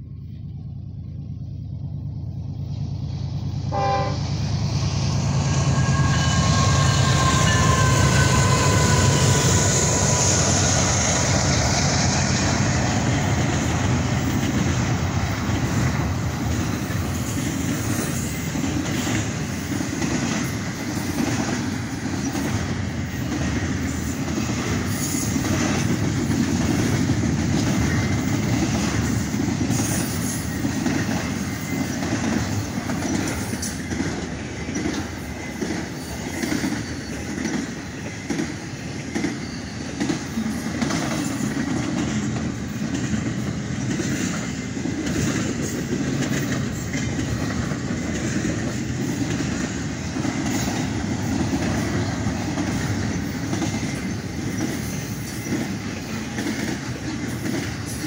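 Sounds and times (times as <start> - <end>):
locomotive engine rumble: 0.0 - 19.4
train horn blast: 3.7 - 4.5, 5.3 - 9.6
train wheel clatter: 3.7 - 58.0.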